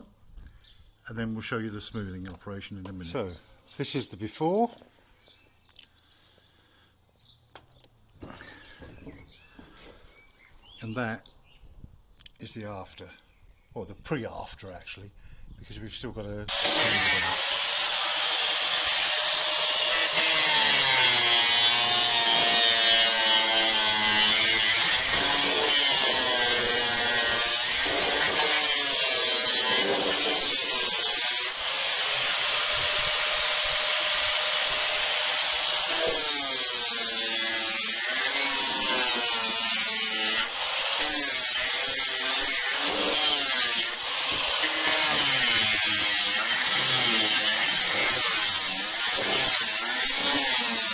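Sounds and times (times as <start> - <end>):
angle grinder sanding wood: 16.5 - 50.9.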